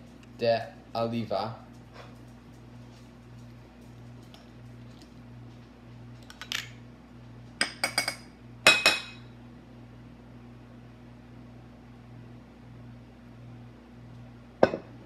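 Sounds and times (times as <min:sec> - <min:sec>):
spoon clinking on dishware: 0:07.6 - 0:09.2.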